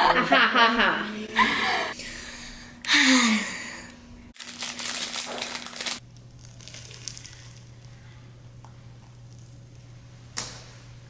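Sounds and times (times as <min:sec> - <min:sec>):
crinkling and crumpling: 0:04.4 - 0:08.0.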